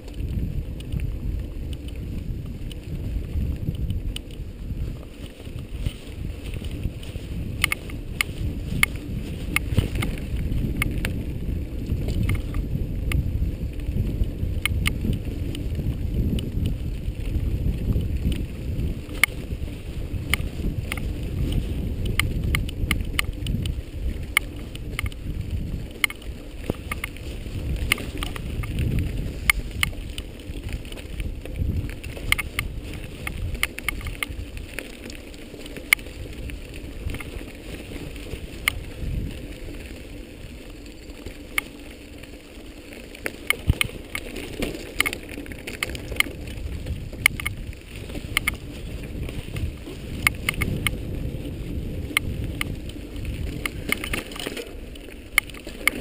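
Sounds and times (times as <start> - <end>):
sharp clicks and rattles: 0.0 - 13.3, 14.0 - 39.8, 43.0 - 51.2, 52.0 - 56.0
low rumble of wind: 0.0 - 56.0.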